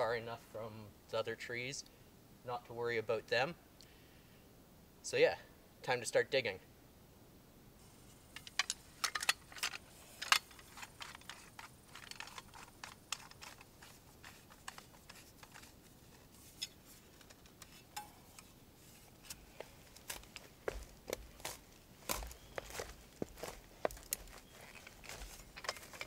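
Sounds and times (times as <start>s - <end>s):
folding shovel clicking and rattling: 8.3s - 20.8s, 21.5s - 26.0s.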